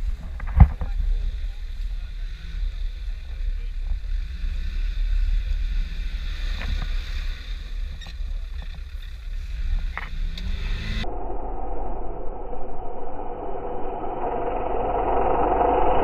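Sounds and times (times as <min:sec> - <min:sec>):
off-road engine revving: 0:00.0 - 0:11.1.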